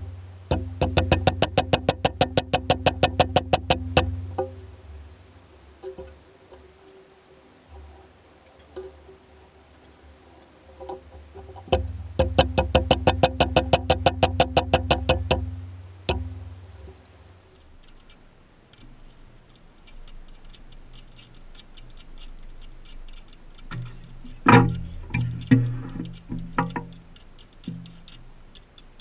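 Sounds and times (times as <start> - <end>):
small hammer tapping metal into wood: 0.4 - 6.2, 10.9 - 17.2, 23.7 - 28.2.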